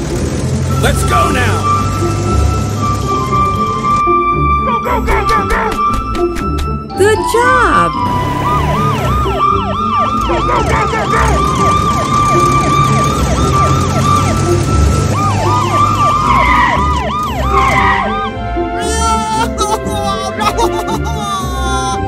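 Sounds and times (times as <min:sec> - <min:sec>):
background music: 0:00.0 - 0:22.0
police siren yelp: 0:07.0 - 0:22.0.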